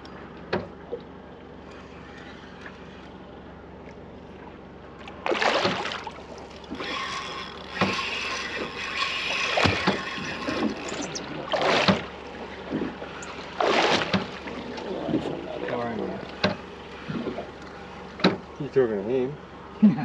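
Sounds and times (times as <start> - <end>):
water splashing against boat: 0.0 - 19.8.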